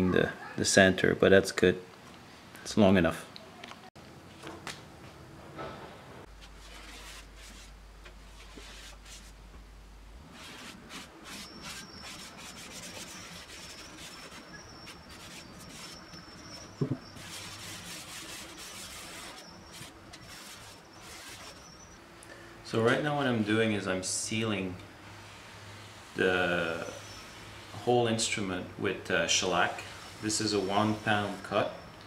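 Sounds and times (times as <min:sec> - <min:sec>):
cloth rubbing on wood: 0:06.4 - 0:09.4, 0:10.3 - 0:21.8.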